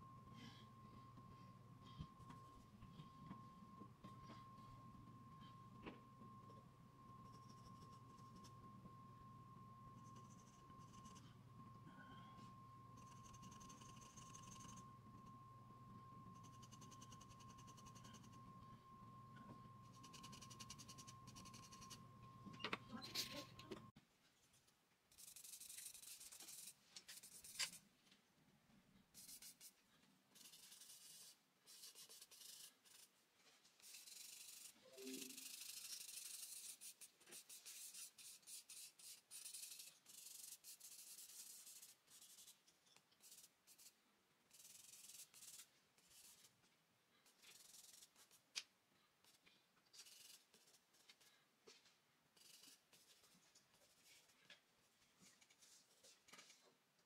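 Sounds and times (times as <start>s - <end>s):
charcoal scratching on paper: 13.0s - 14.8s, 25.1s - 27.8s, 29.2s - 29.8s, 30.4s - 33.2s, 33.8s - 46.7s, 47.4s - 48.4s, 50.0s - 51.2s, 52.4s - 54.2s.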